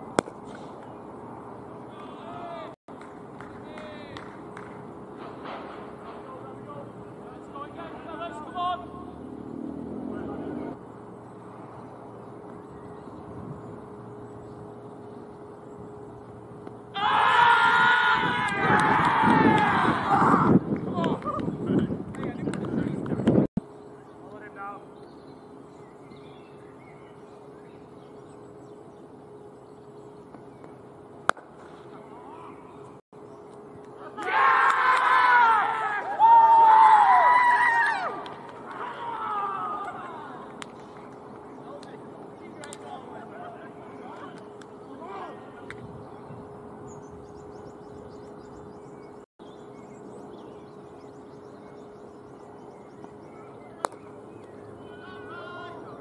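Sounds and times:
faint birdsong: 0.0s - 19.9s, 20.9s - 56.0s
low hum: 0.0s - 56.0s
cricket ball striking bat: 0.1s - 0.7s, 31.3s - 31.7s
cricket bat striking ball: 31.3s - 31.7s.

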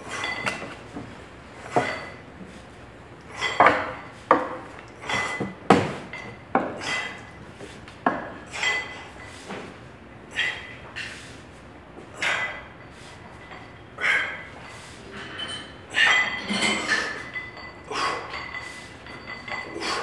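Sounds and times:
gym weights clanking: 1.6s - 2.2s, 3.3s - 7.4s, 8.2s - 9.4s, 12.2s - 20.0s.

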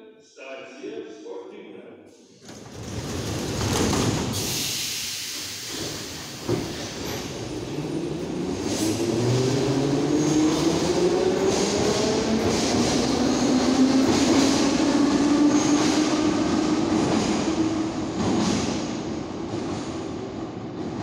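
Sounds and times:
train cars rumbling and rattling: 2.3s - 21.0s
train clunk: 2.4s - 7.7s.

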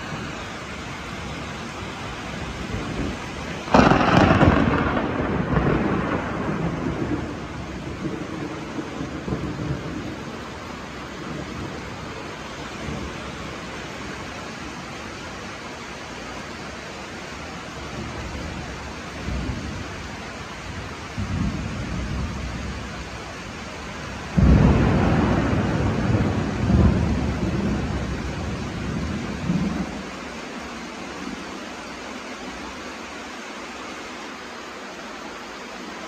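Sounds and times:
distant thunder rumbling: 0.0s - 14.8s, 17.8s - 30.3s
steady rain: 0.0s - 36.0s
loud thunderclap: 2.6s - 10.4s, 24.3s - 30.0s.

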